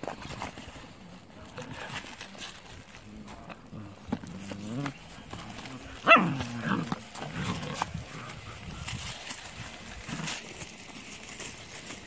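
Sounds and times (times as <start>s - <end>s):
puppy yelp: 6.0s - 6.8s.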